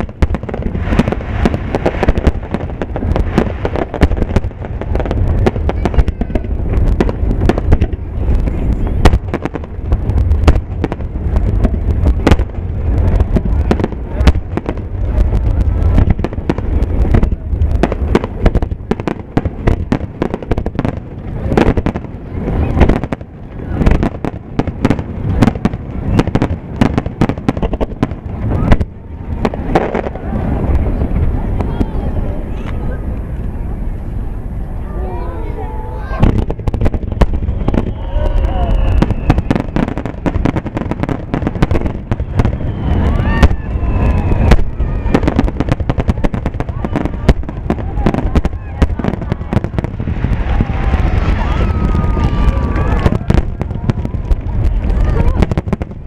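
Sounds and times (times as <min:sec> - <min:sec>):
deep rumble: 0:00.0 - 0:56.0
firework shells bursting: 0:22.8 - 0:30.1.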